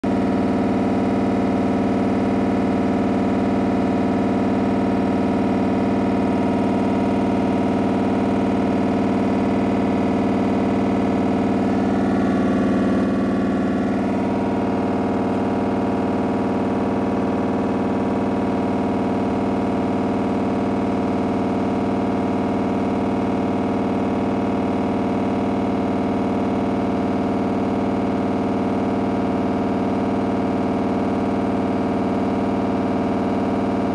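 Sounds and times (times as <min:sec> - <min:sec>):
washing machine drum spinning: 0:00.0 - 0:21.6.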